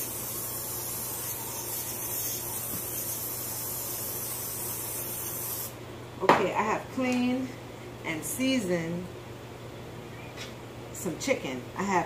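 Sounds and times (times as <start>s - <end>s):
aerosol spray hissing: 0.0s - 5.8s.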